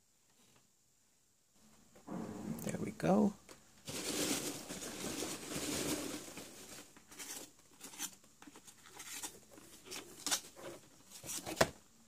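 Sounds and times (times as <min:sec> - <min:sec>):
packing material rustling: 0:03.8 - 0:11.7.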